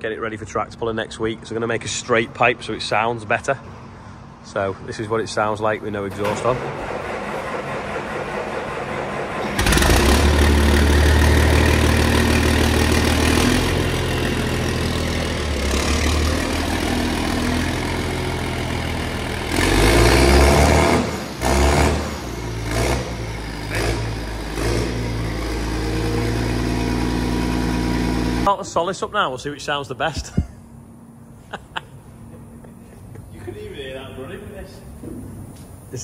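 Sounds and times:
loud tractor engine revving: 6.1 - 28.5.

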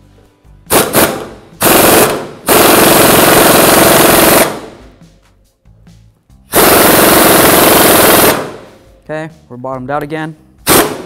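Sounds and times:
pneumatic impact wrench hammering: 0.7 - 4.8, 6.5 - 8.8, 10.7 - 11.0.

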